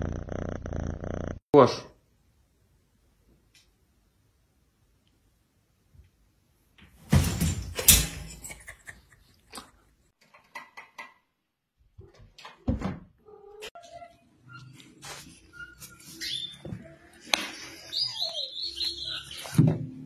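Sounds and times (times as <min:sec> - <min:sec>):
knocks and rattles: 0:06.9 - 0:08.8
metal drying rack crashing: 0:07.0 - 0:08.6.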